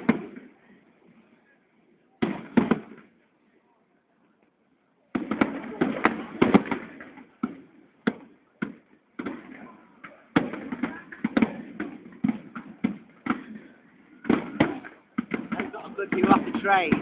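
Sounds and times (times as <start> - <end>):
fireworks bangs: 0.0 - 0.6, 2.2 - 3.2, 5.1 - 17.0.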